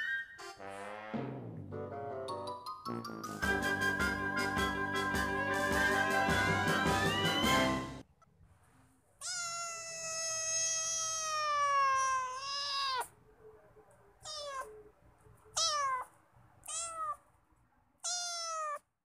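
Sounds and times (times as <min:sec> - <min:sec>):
cat meowing: 0:09.2 - 0:13.2, 0:14.2 - 0:14.9, 0:15.5 - 0:17.2, 0:18.0 - 0:18.9.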